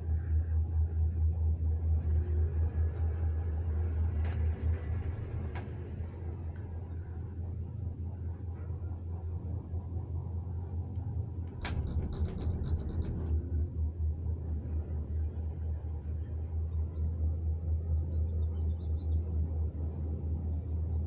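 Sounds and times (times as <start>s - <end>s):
gondola cabin rumbling: 0.0s - 21.0s
rattling ticks over rollers: 11.4s - 13.9s.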